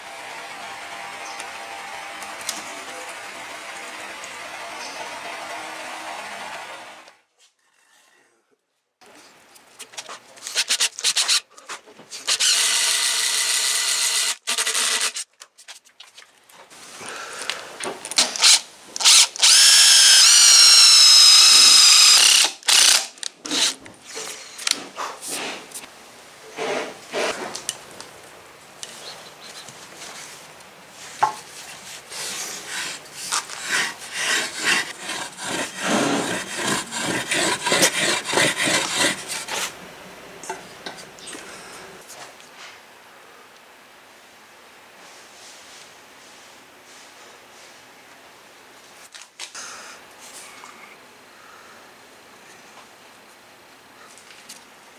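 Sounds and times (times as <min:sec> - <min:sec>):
hand saw cutting wood: 0:32.1 - 0:39.8.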